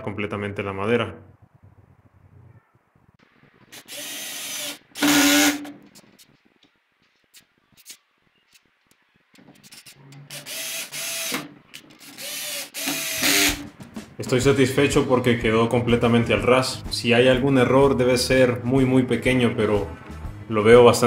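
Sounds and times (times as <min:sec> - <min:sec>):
drill driving screws: 0:03.7 - 0:05.7, 0:09.8 - 0:13.7.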